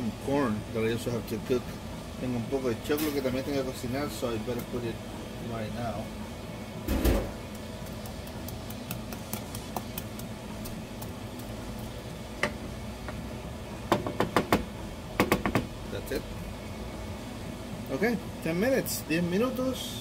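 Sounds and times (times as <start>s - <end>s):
wooden spoon stirring in pot: 7.4s - 12.0s.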